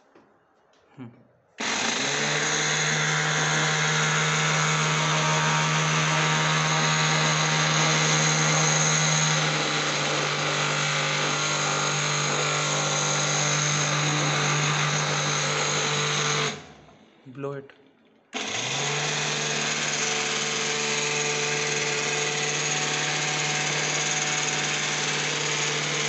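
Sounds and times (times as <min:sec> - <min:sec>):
small vacuum cleaner motor whirring: 0:01.6 - 0:17.0.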